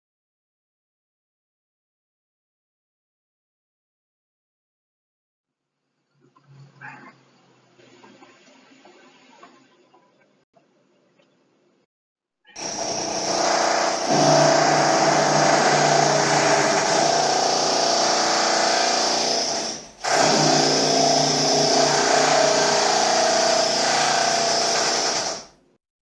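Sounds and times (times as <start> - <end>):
electric drill running: 12.6 - 25.6.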